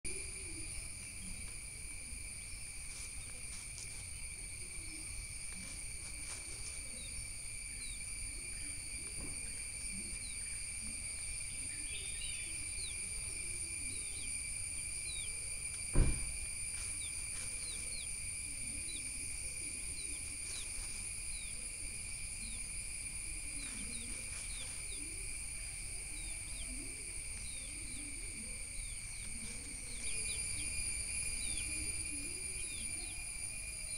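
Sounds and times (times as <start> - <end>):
high-pitched insect drone: 0.1 - 33.9
sharp knock: 15.9 - 16.4.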